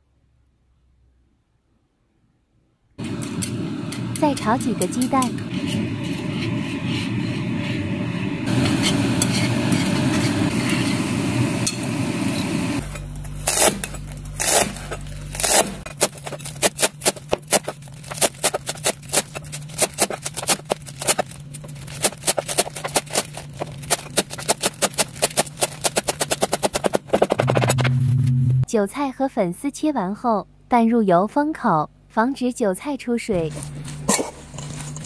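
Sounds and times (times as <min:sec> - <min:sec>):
chopsticks scrambling eggs: 0:12.8 - 0:27.4, 0:33.4 - 0:35.0
cleaver chopping on cutting board: 0:22.0 - 0:27.8.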